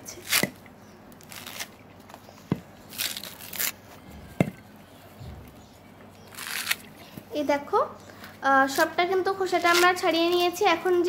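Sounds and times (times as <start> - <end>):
coconut husk tearing: 0.2 - 1.8, 2.8 - 4.4, 6.2 - 6.9, 8.7 - 10.0
sharp knocks: 4.1 - 5.7.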